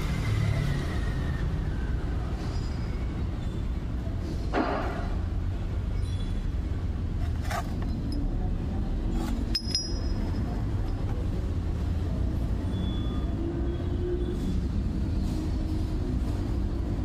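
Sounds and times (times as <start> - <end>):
light metallic clinks: 9.2 - 11.5.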